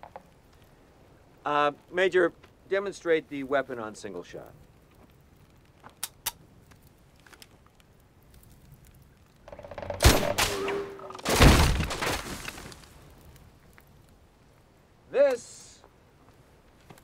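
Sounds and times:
gunshots: 9.8s - 12.4s
loud crash: 10.0s - 12.6s.

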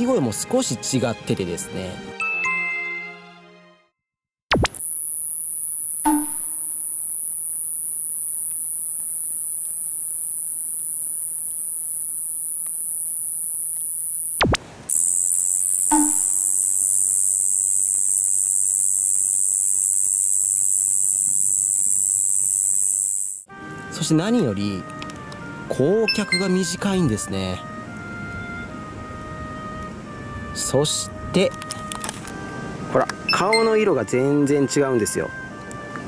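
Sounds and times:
high-pitched katydid buzz: 4.5s - 23.5s
lower thicker katydid buzz: 4.5s - 23.5s.

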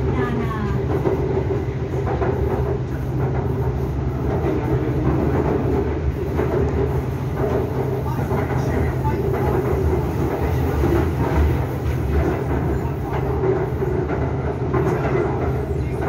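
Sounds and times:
train carriage rumbling on track: 0.0s - 16.0s.

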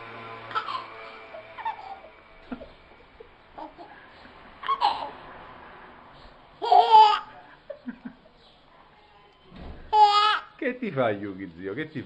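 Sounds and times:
baby laughing: 0.5s - 1.0s, 1.6s - 2.7s, 3.5s - 4.0s, 4.6s - 5.2s, 6.6s - 7.6s, 9.9s - 10.5s.

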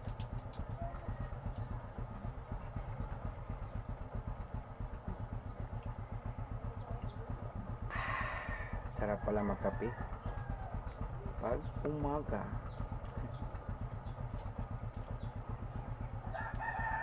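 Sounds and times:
small engine idling: 0.0s - 17.0s.

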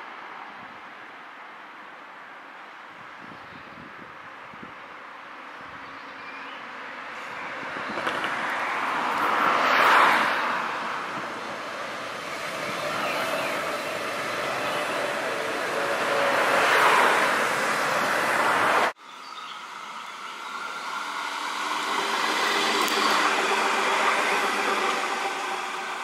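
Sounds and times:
tram wheels rumbling on rails: 6.8s - 19.0s, 19.6s - 26.0s.

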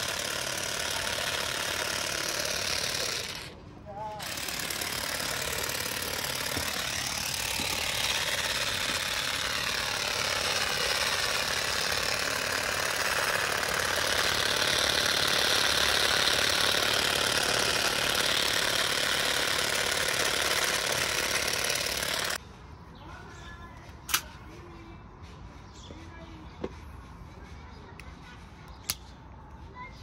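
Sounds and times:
cordless shears buzzing: 0.0s - 22.4s.

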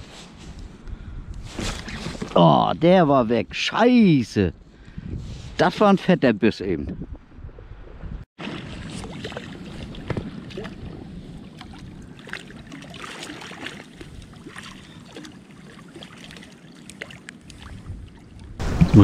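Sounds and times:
wind rumble on microphone: 0.0s - 2.2s, 4.5s - 5.6s, 6.8s - 12.7s, 17.4s - 19.0s
water lapping and splashing: 7.9s - 19.0s.

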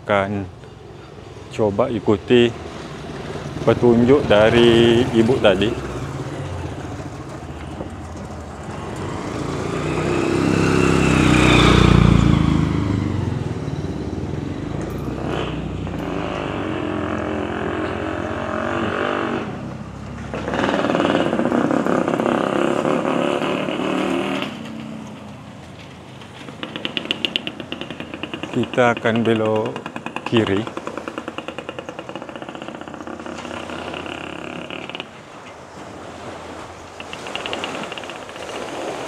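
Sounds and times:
road noise: 0.0s - 39.0s
motorcycle engine running: 26.5s - 34.6s.

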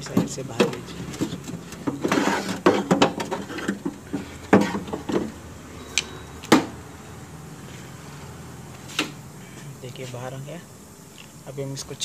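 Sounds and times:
metal rods knocking and scraping: 0.0s - 5.3s.

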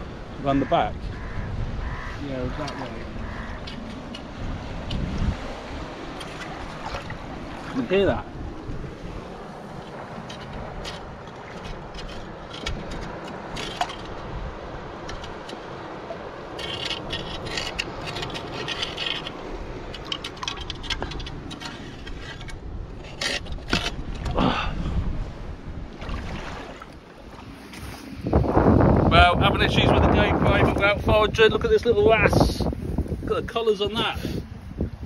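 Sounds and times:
wind on microphone: 0.0s - 35.0s
clicks and scraping among rocks: 9.8s - 14.2s, 16.5s - 24.4s, 27.5s - 28.2s.

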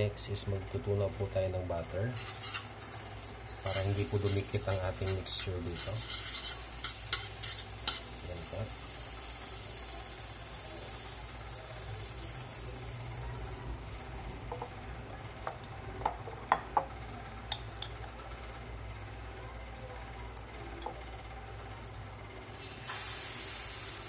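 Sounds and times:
faint sizzle in wok: 2.0s - 15.0s, 17.3s - 24.0s.

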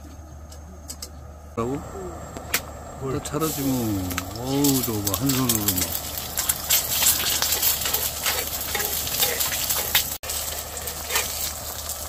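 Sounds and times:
crackling pops: 1.6s - 2.8s, 3.4s - 12.0s
egg sizzling in oil: 3.4s - 12.0s.

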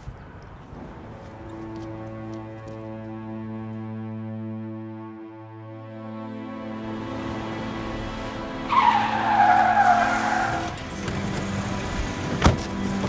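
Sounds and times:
low music drone: 0.6s - 13.0s
car tyres screeching: 6.8s - 13.0s
car door bang: 12.4s - 12.7s.

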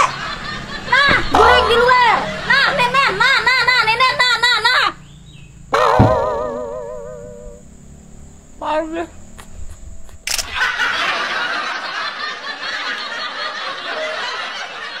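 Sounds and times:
people laughing: 0.0s - 4.2s, 10.4s - 15.0s
camera shutter click: 10.2s - 10.6s.

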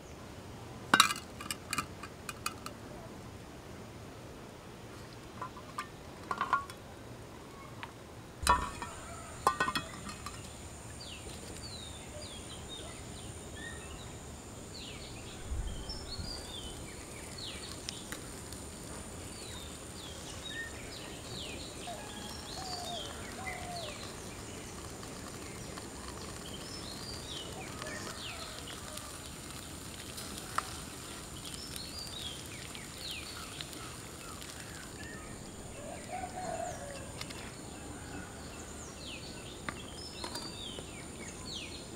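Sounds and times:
cup and cookware clinking on pan: 1.0s - 2.6s, 5.4s - 6.8s, 8.4s - 10.5s
small birds chirping: 30.4s - 37.6s.

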